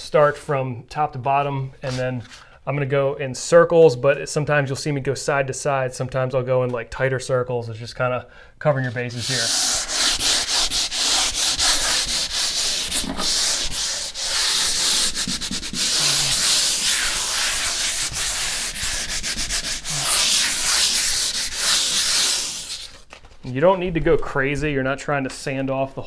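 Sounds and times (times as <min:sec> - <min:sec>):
sandpaper rubbing on wall: 0:08.9 - 0:23.0.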